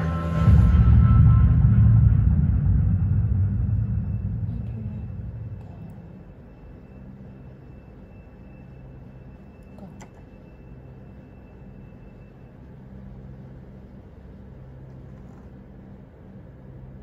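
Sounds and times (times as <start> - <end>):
low steady hum and rumble: 0.0 - 17.0
faint high tone: 4.4 - 12.6.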